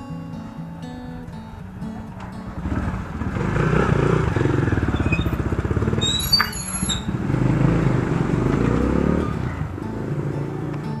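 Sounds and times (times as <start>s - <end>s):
dirt bike engine running: 2.1s - 10.6s.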